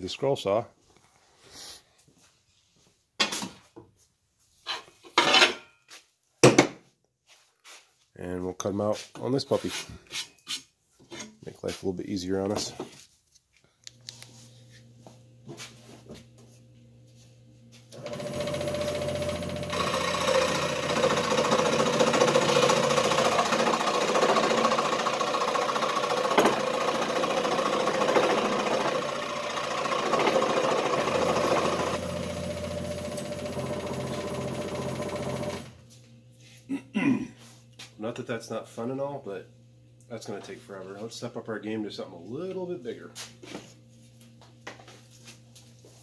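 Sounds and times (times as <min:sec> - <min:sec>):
scroll saw buzzing: 0:18.0 - 0:35.8.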